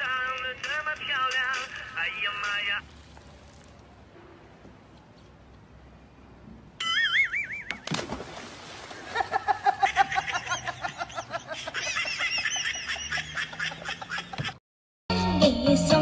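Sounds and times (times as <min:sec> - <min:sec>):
high-pitched laughter: 0:06.8 - 0:07.7, 0:09.1 - 0:14.6.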